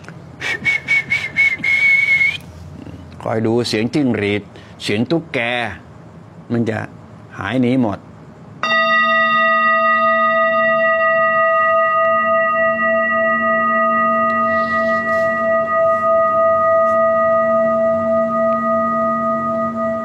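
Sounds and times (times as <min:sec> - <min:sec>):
singing bowl ringing: 0:08.6 - 0:20.0.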